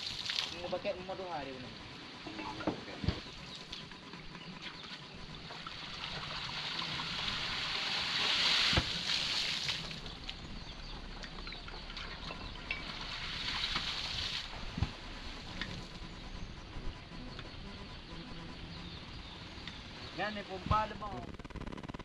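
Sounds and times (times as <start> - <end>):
water gushing and splashing: 5.5 - 10.4, 11.9 - 14.8.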